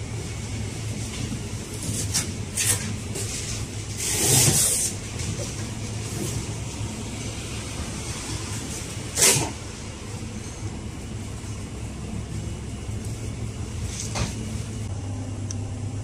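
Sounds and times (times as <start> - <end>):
freezers humming: 0.0 - 16.0.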